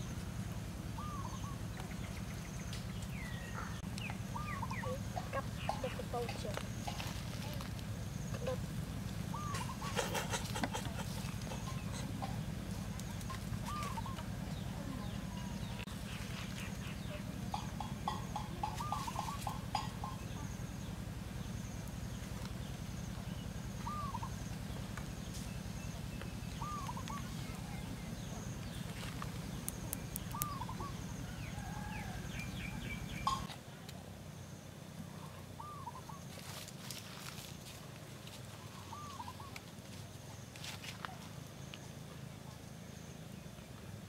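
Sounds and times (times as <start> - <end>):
birds calling: 0.0 - 33.6, 34.3 - 44.0
steady low hum: 0.0 - 44.0.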